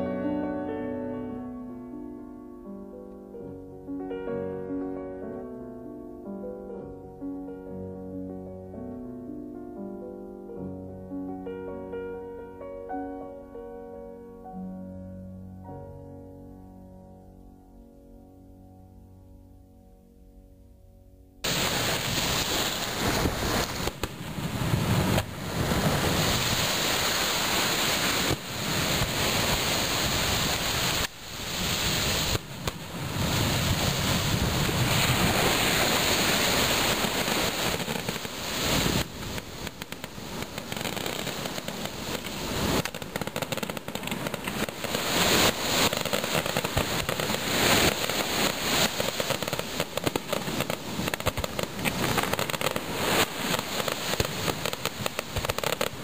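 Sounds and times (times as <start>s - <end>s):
fireworks bangs and crackling: 21.4s - 56.0s.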